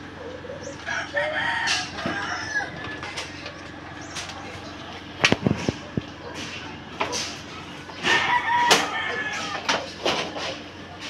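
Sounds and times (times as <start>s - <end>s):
rooster crowing: 0.2s - 4.0s, 8.0s - 9.9s.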